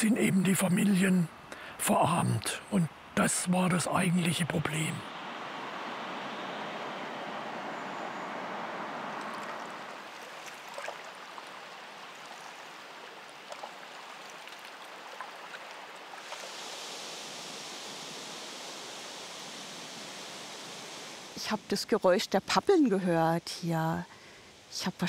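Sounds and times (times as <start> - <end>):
even hiss: 0.0 - 10.4, 16.0 - 25.0
river water rushing: 2.9 - 21.7.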